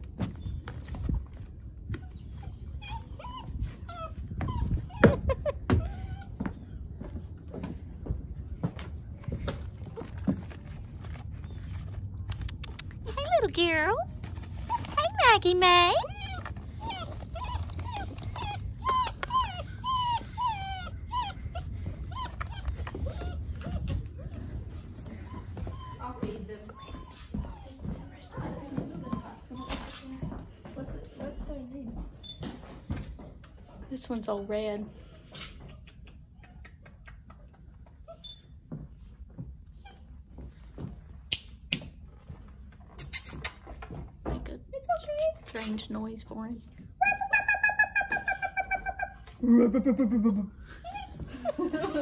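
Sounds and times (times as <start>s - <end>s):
puppy whimpering: 1.9s - 6.8s, 14.3s - 30.4s, 37.9s - 40.2s, 46.5s - 49.8s, 50.7s - 52.0s.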